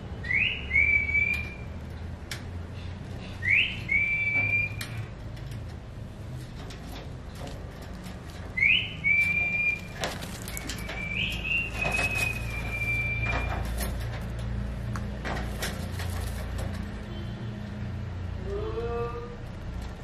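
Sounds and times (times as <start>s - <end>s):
parakeet whistling: 0.2s - 1.6s, 3.4s - 4.8s, 8.6s - 9.9s, 10.5s - 13.5s
claws clicking on cage wire: 1.1s - 17.1s.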